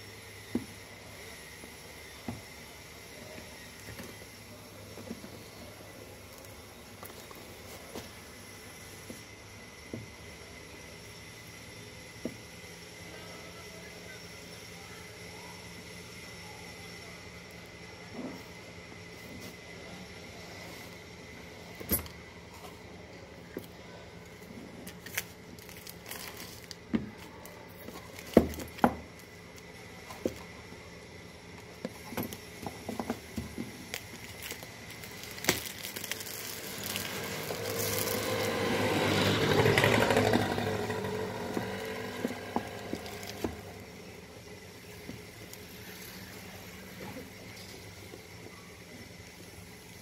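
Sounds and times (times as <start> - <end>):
plastic wrap peeling and crinkling: 24.8 - 30.5, 33.2 - 38.6, 41.6 - 43.5.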